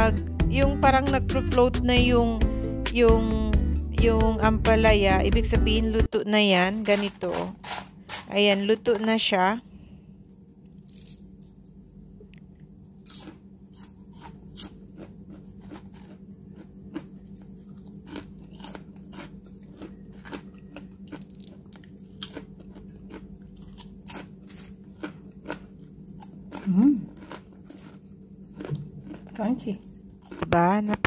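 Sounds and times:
steady low hum: 0.0s - 31.0s
chewing crisp chips: 10.7s - 31.0s.

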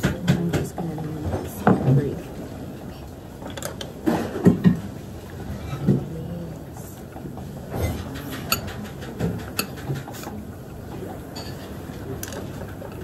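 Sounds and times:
low background noise: 0.0s - 13.0s
utensils clicking on ceramic bowl: 8.0s - 10.4s.

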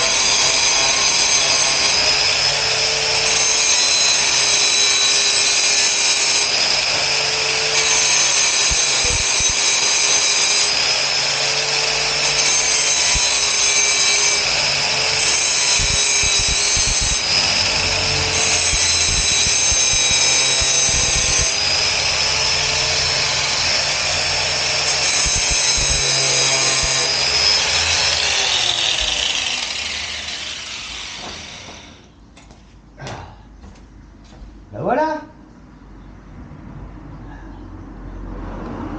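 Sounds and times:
grinder winding down: 0.0s - 32.2s
angle grinder whining: 0.0s - 32.6s.

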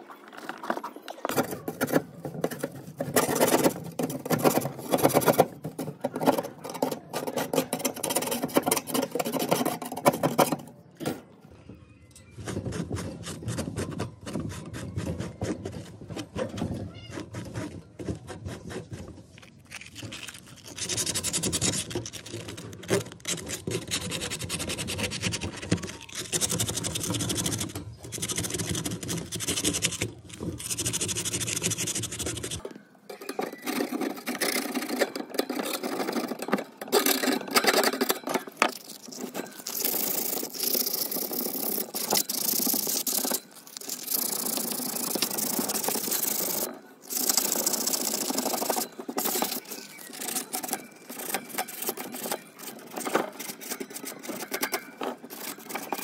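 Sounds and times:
pad scrubbing rusty metal: 12.5s - 32.6s, 33.5s - 56.0s.

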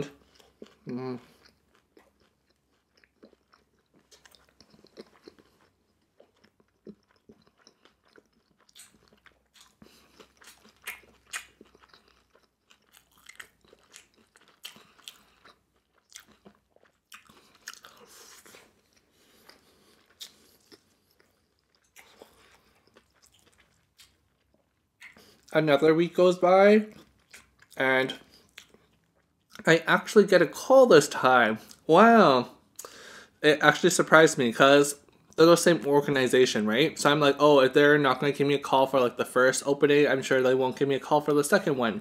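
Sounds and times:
person chewing food: 0.1s - 25.5s, 26.9s - 29.7s
wet mouth clicks: 9.6s - 12.0s, 25.0s - 25.5s.

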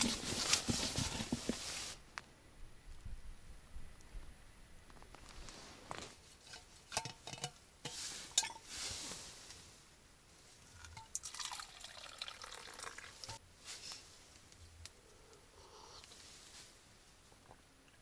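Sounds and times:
liquid pouring into cup: 10.8s - 13.4s.

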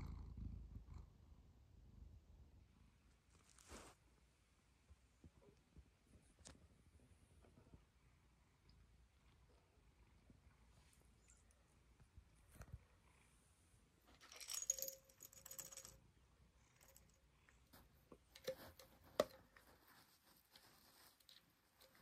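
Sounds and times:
glass jar lid rattling and clinking: 14.2s - 16.0s.

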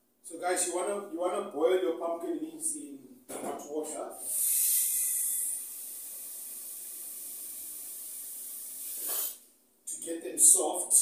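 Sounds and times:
steady hiss: 4.2s - 9.5s.

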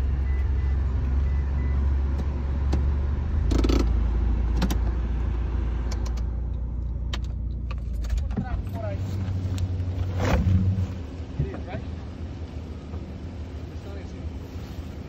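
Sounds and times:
car engine and road rumble: 0.0s - 15.0s.

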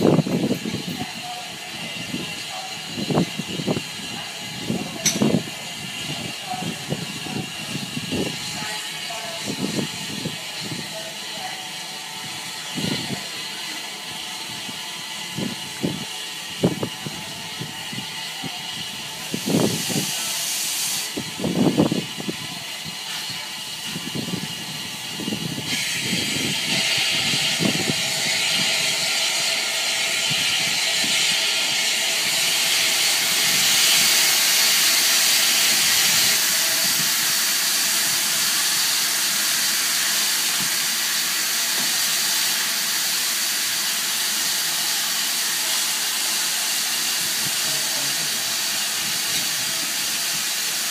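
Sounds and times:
steam hissing loudly: 0.0s - 50.9s.

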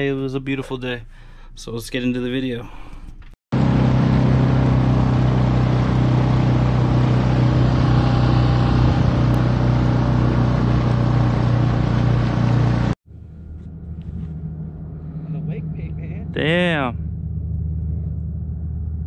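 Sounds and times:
outboard motor running: 3.6s - 13.0s.

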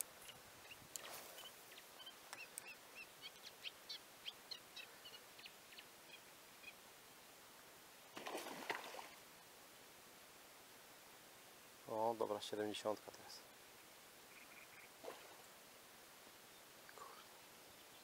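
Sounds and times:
small birds chirping: 0.0s - 6.8s, 13.1s - 15.3s, 16.4s - 18.0s
fish splashing at water surface: 8.2s - 9.2s.

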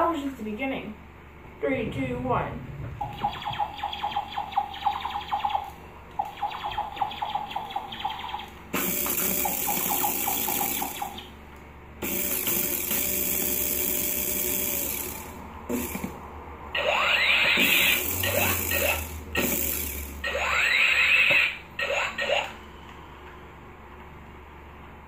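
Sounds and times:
steady electronic tones: 2.6s - 11.4s, 12.0s - 22.6s
stuttering electronic buzz: 2.9s - 11.4s, 12.0s - 22.6s.

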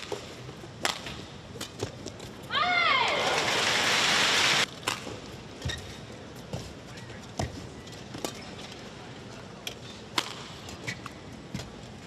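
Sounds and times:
racquets striking shuttlecock: 0.0s - 2.4s, 9.7s - 11.8s.

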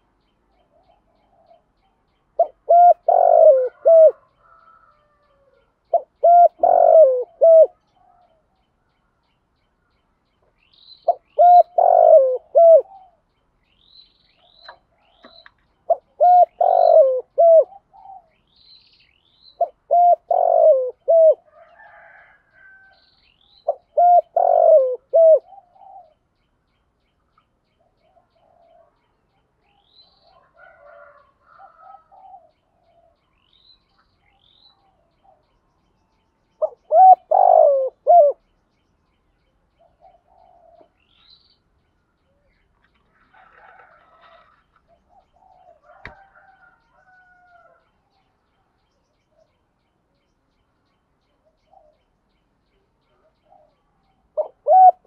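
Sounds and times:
small birds chirping: 0.0s - 55.0s
dove cooing: 0.6s - 8.4s, 11.0s - 13.2s, 14.4s - 18.5s, 19.6s - 22.9s, 23.6s - 26.2s, 27.8s - 29.0s, 30.2s - 33.2s, 36.6s - 38.4s, 39.8s - 41.2s, 43.2s - 47.8s, 53.1s - 55.0s.

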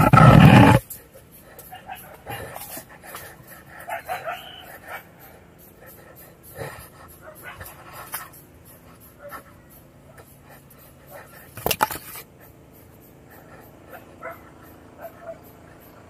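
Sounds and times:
person panting: 0.7s - 11.6s, 12.4s - 16.0s.

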